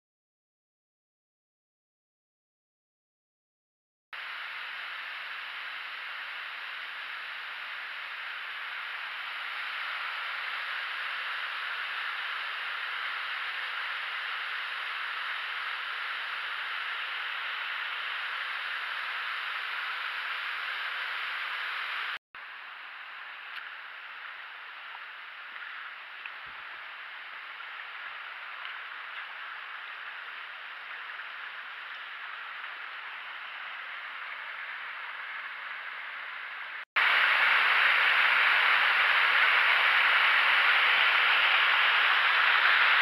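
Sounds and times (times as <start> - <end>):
falling water rushing: 37.0 - 43.0
stream water rushing: 37.0 - 43.0.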